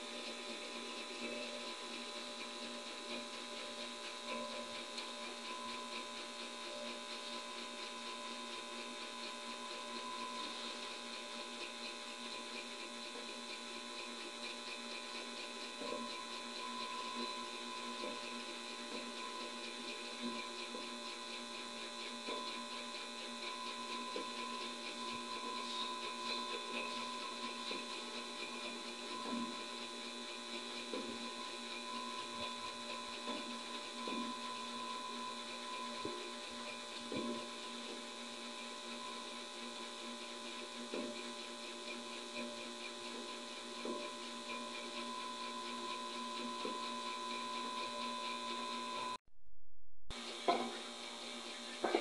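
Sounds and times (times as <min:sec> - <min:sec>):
tesla coil electrical hum: 0:00.0 - 0:40.0.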